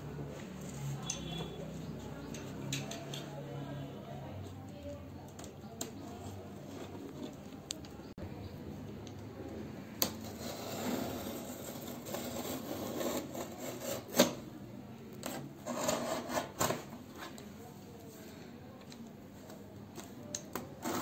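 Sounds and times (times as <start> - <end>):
knife scraping packing tape: 10.1 - 14.4, 15.2 - 17.0, 20.6 - 21.0.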